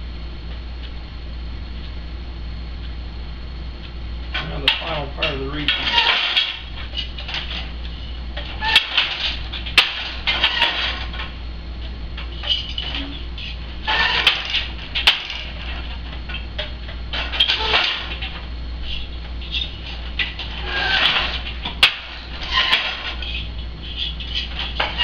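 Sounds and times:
loom beater against cloth: 0:04.4 - 0:11.4, 0:12.2 - 0:25.0
loom shuttle swishing: 0:12.1 - 0:25.0.

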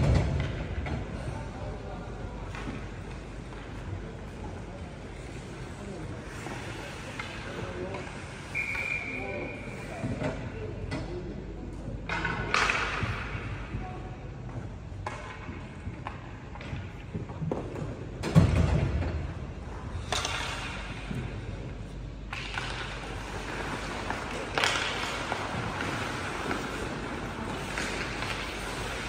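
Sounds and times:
skates scraping ice: 0:02.5 - 0:10.1, 0:22.3 - 0:29.0
hockey sticks clacking: 0:12.1 - 0:13.7, 0:15.0 - 0:18.6, 0:20.0 - 0:21.7, 0:22.3 - 0:29.0.

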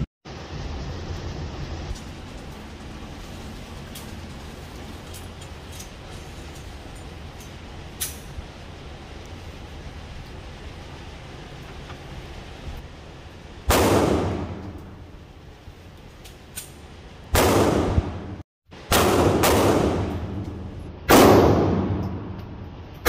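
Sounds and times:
rifle shots echoing: 0:13.7 - 0:14.8, 0:17.4 - 0:20.4, 0:21.1 - 0:22.4.

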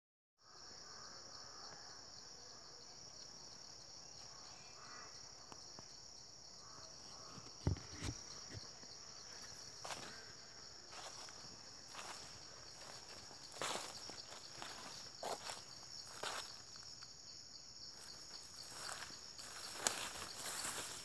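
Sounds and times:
forest insects droning: 0:00.4 - 0:21.0
dull thumps: 0:07.4 - 0:08.7
footsteps on dry leaves: 0:10.9 - 0:16.7, 0:18.0 - 0:21.0.

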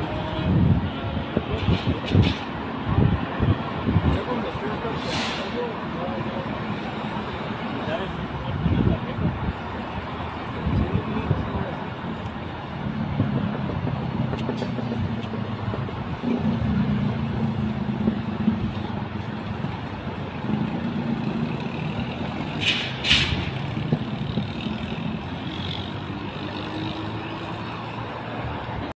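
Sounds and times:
air hiss bursts: 0:05.0 - 0:05.6
electric train rumbling: 0:11.6 - 0:28.0.

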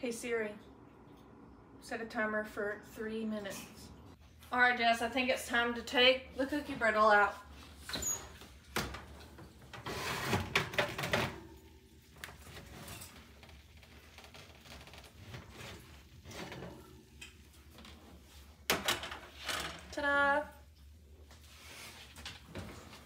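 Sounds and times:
baking sheet scraping and clinking: 0:09.8 - 0:11.5
oven door opening with clatter: 0:15.0 - 0:17.9.

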